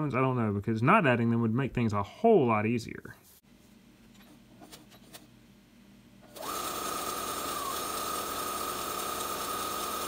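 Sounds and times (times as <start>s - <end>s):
sewing machine whining: 6.3s - 10.0s.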